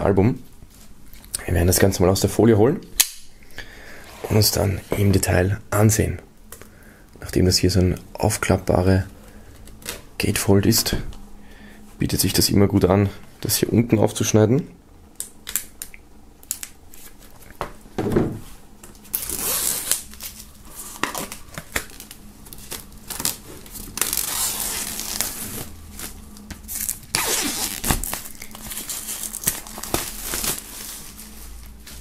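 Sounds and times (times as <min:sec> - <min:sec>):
plastic wrap crinkling and tearing: 0:19.0 - 0:32.0.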